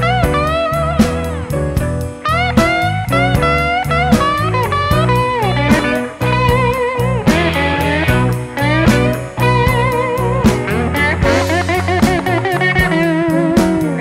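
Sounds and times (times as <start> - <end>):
lead guitar bending notes: 0.0 - 14.0
steady drum beat: 0.0 - 14.0
walking bass: 0.0 - 14.0.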